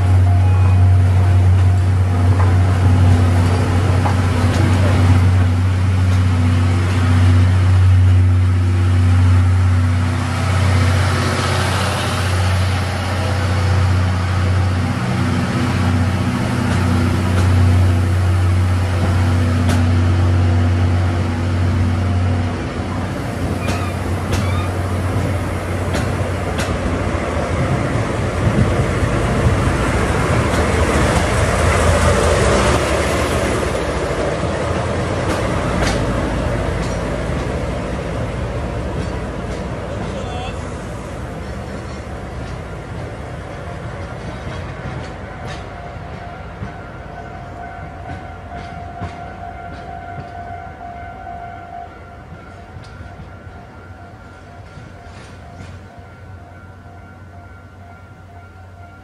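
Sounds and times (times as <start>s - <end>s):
diesel locomotive passing: 0.0s - 59.0s
train coaches rolling with low hum: 0.0s - 59.0s
train wheel clicks: 23.6s - 27.0s, 34.6s - 37.6s.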